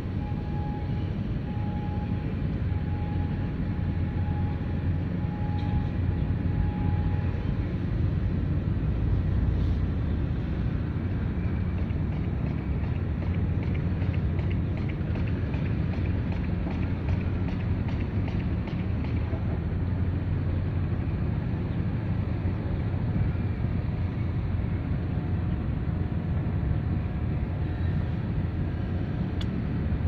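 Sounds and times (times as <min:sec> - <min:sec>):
low steady rumble: 0:00.0 - 0:30.0.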